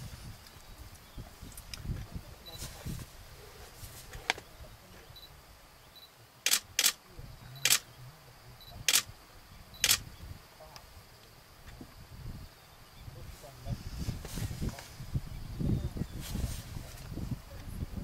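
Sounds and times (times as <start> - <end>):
camera shutter clicking: 6.5 - 7.0, 7.6 - 7.8, 8.9 - 9.1, 9.8 - 10.0.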